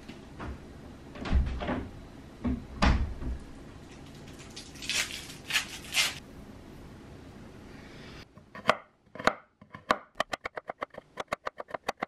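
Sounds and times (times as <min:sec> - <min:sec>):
door thudding shut: 0:01.2 - 0:03.4.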